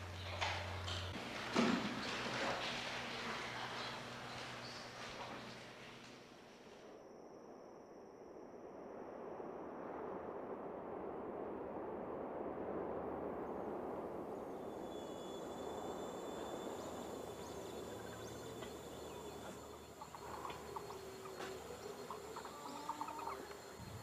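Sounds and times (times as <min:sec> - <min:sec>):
steady high-pitched whine: 0:00.0 - 0:24.0
short chirping animal calls: 0:17.8 - 0:23.9.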